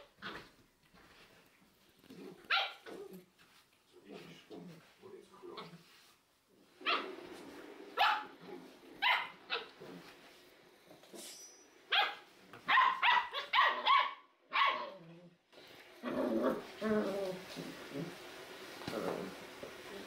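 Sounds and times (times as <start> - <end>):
puppies barking: 8.0 - 8.3, 9.0 - 9.8, 11.9 - 14.9.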